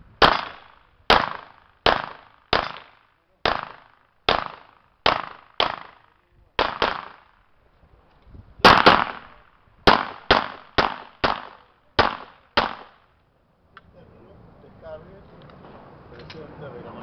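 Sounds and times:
pistol shots with echo: 0.2 - 7.4, 8.6 - 13.0.

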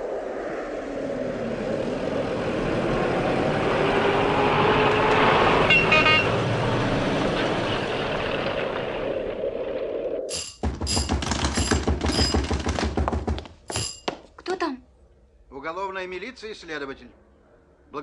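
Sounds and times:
car horn toot: 5.7 - 6.4.

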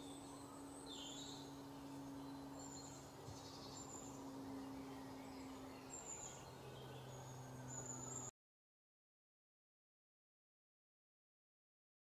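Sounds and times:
small birds chirping: 0.0 - 8.3
steady low hum: 0.0 - 8.3.

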